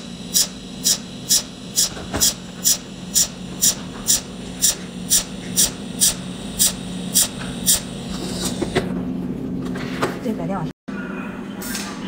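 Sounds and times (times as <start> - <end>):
spot welder hissing crackle: 0.0 - 8.8
steady low hum: 0.0 - 9.8.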